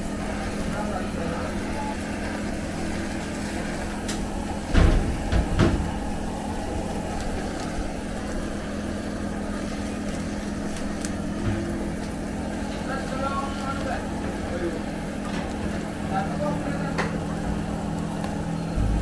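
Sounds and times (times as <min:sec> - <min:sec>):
blowtorch burning: 0:00.0 - 0:19.0
low steady hum: 0:00.0 - 0:19.0
loud knocks: 0:04.7 - 0:06.1.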